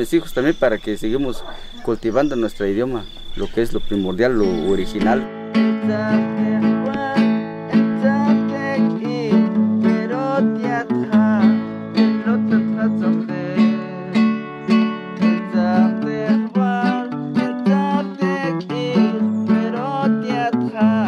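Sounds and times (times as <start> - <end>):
acoustic guitar strumming: 4.0 - 21.0
man singing: 4.2 - 14.4, 15.2 - 21.0.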